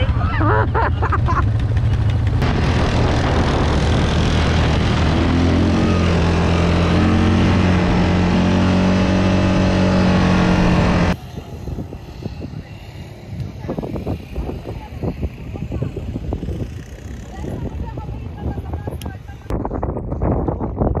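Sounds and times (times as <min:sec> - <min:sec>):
quad bike engine running: 0:00.0 - 0:11.2, 0:13.1 - 0:19.5
rushing noise: 0:02.2 - 0:11.2.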